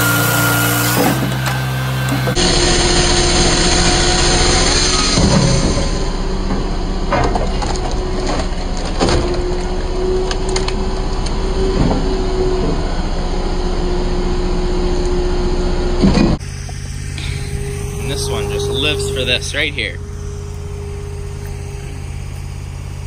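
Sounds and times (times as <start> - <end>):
knocks and cracks of splitting logs: 0.0 - 2.4, 5.0 - 12.8
firewood processor droning: 0.0 - 23.0.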